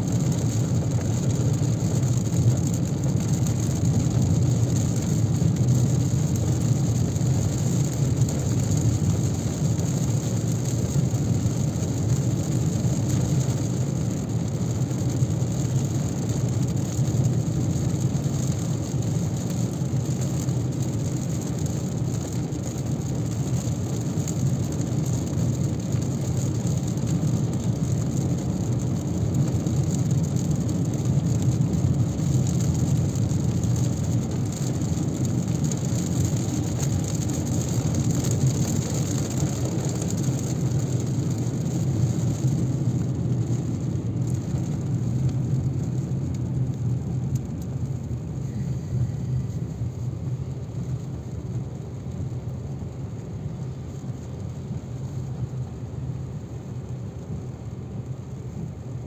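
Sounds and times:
rain on a car: 0.0 - 59.0
road noise: 0.0 - 59.0
low even rumble: 30.4 - 51.6.

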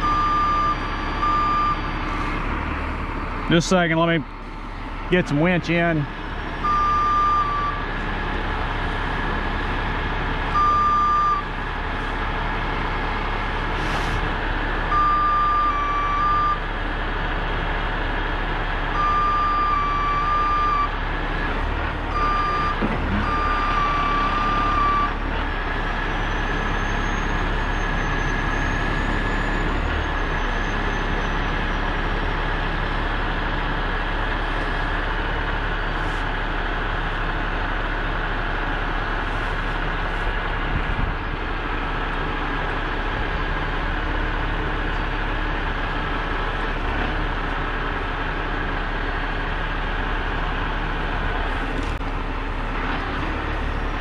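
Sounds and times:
warning beep: 0.0 - 2.1, 6.6 - 7.8, 10.6 - 11.5
tow truck engine running: 0.0 - 54.0.

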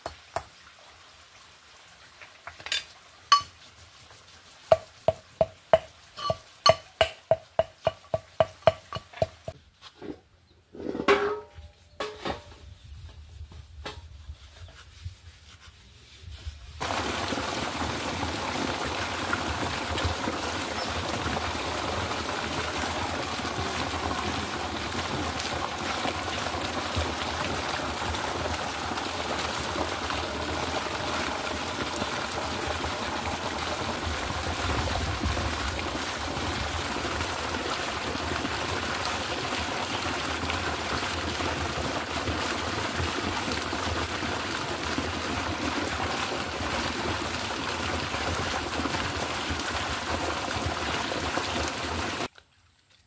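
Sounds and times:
water gushing from hose into pot: 16.8 - 52.3.

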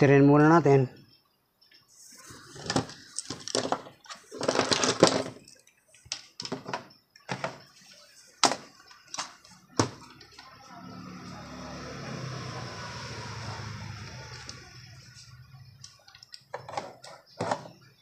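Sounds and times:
objects clicking and knocking: 2.6 - 7.8, 15.8 - 18.0.

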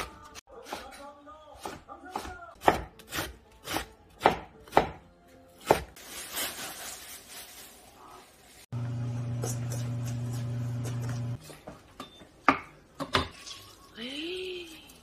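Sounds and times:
knife chopping on wooden board: 1.6 - 5.0
plastic bag rustling: 6.0 - 8.7.

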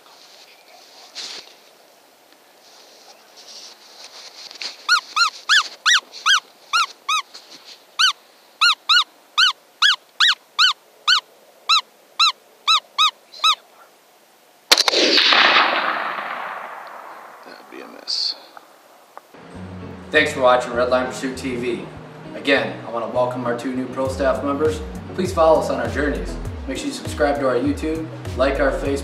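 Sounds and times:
short squeaky calls: 4.6 - 13.9
rifle shot echoing: 14.7 - 17.8.

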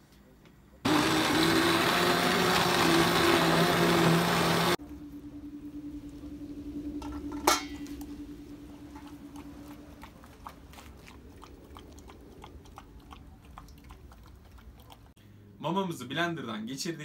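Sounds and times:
low steady hum: 4.7 - 17.0
dog lapping and chewing food: 9.3 - 15.2.

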